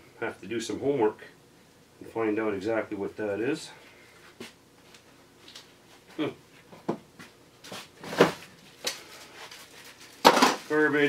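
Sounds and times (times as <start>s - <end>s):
items rummaged in plastic tote: 8.0s - 11.0s.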